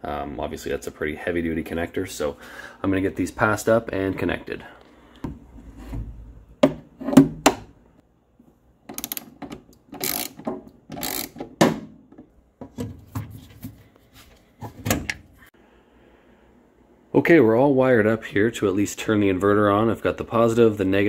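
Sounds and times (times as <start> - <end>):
ratchet clicking: 8.9 - 9.4, 10.0 - 11.4.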